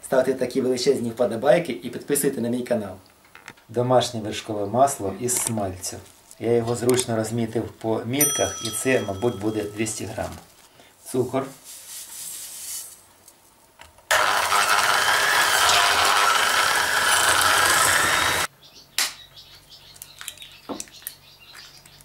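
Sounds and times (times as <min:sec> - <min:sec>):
electric mixer running in a pot: 0:14.1 - 0:18.5.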